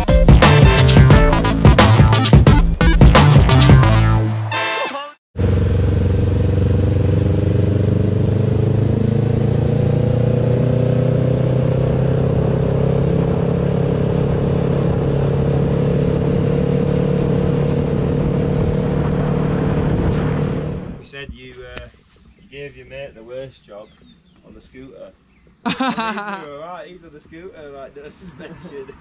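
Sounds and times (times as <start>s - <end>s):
motorcycle engine running: 5.4s - 21.0s
wind and road noise: 5.4s - 22.4s.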